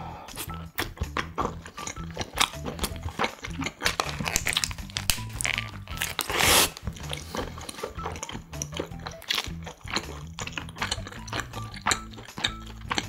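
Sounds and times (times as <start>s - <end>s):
crunchy chewing: 0.3s - 13.0s
paper wrapper crinkling: 2.8s - 8.1s.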